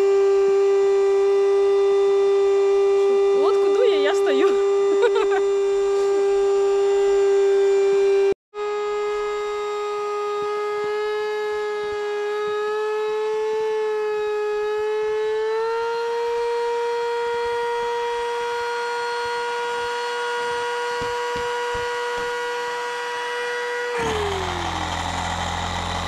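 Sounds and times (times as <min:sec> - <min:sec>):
electric air pump whining: 0:24.0 - 0:26.0.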